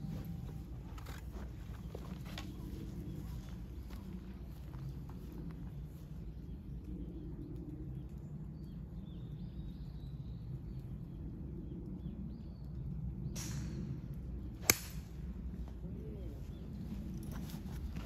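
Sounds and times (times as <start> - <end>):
low wind rumble: 0.0 - 18.0
small birds chirping: 0.1 - 18.0
sharp crack: 14.6 - 15.2.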